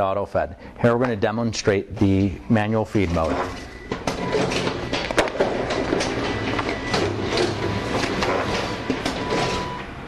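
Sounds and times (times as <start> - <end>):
booklet maker clacking and knocking: 3.3 - 9.7.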